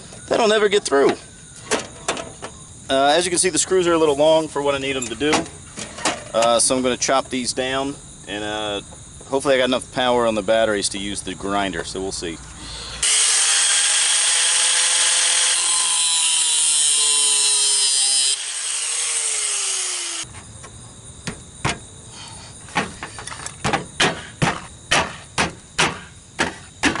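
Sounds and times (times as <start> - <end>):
angle grinder cutting screw: 13.0 - 20.3.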